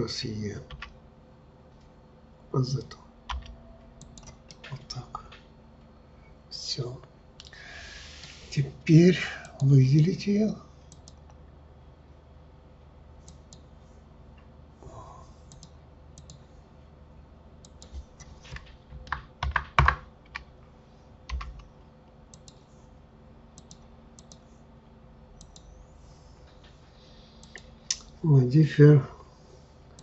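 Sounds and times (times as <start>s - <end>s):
faint steady hum: 0.0s - 30.0s
mouse clicks: 10.9s - 11.4s, 15.5s - 16.4s, 22.3s - 22.6s, 23.6s - 24.4s
keyboard key presses: 17.7s - 20.5s, 21.3s - 21.6s.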